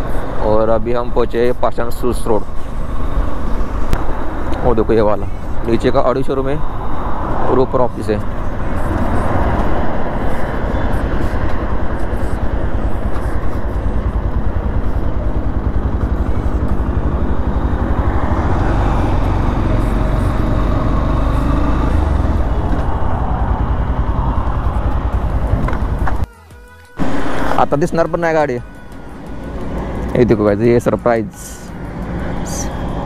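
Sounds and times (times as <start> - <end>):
motorcycle engine running: 8.2 - 26.3
wind on microphone: 21.8 - 26.2.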